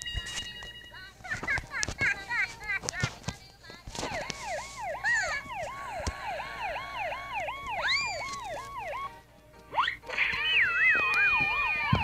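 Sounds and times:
cartoon police siren wail: 4.0 - 12.0.

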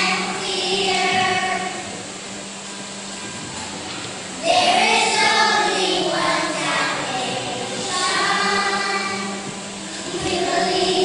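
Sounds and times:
children's choir singing: 0.0 - 2.2, 4.4 - 11.0.

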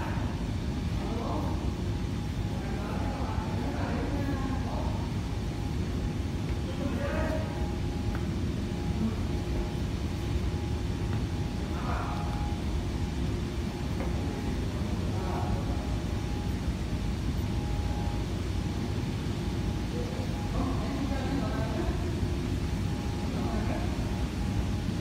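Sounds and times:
conveyor belt rumbling: 0.0 - 25.0
faint steady whine: 0.0 - 25.0.

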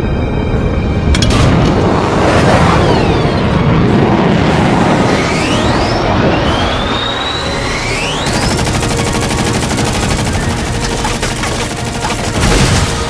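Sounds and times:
jet whine: 0.0 - 11.9
jet cannon fire: 10.0 - 13.0.

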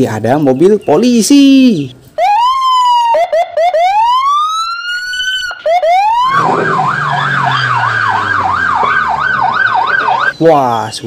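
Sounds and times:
police siren wailing and yelping: 2.2 - 10.5.

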